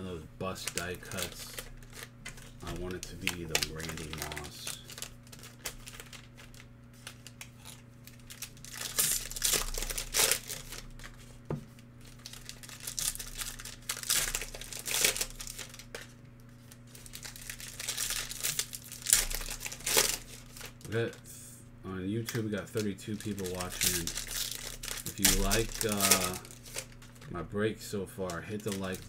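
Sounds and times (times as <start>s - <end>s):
wrappers tearing open: 0.4s - 11.3s, 12.0s - 21.0s, 22.2s - 27.3s, 28.3s - 29.0s
foil wrappers crinkling: 0.4s - 21.2s, 22.2s - 27.4s, 28.2s - 29.0s.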